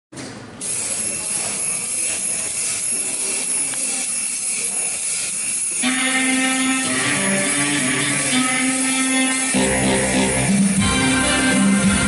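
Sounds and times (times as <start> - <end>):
music with held tones: 5.8 - 12.0.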